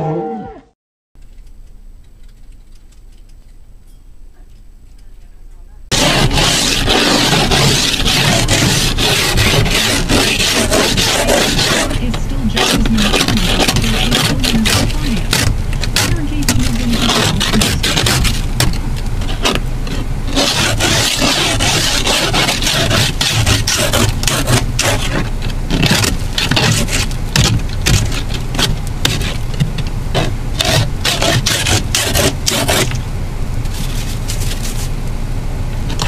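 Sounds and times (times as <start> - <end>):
ice scraper rasping on windshield: 5.9 - 33.0, 33.7 - 35.0.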